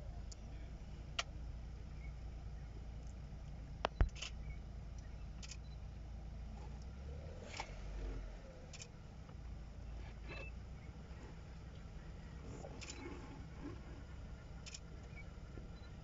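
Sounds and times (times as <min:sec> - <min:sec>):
vehicle engine idling: 0:00.0 - 0:16.0
small clicks: 0:03.0 - 0:05.8, 0:06.7 - 0:09.4, 0:12.6 - 0:13.8, 0:14.6 - 0:15.9.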